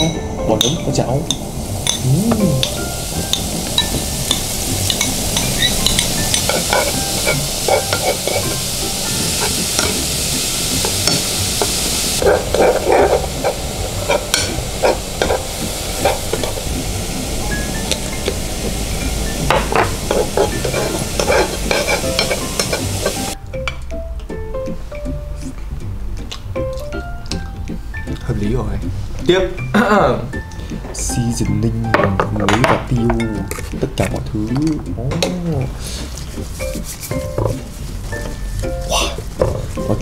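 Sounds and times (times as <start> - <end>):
spoon tapping pan: 0.0 - 10.1, 10.8 - 16.7, 19.4 - 23.9
mushrooms sizzling in frying pan: 0.0 - 23.4, 28.8 - 40.0
metal spoon scraping pan: 2.6 - 10.1, 10.8 - 16.6, 19.5 - 23.4.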